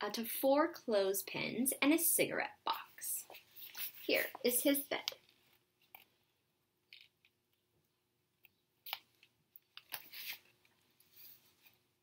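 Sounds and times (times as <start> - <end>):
book pages rustling: 3.2 - 4.5, 8.9 - 11.9.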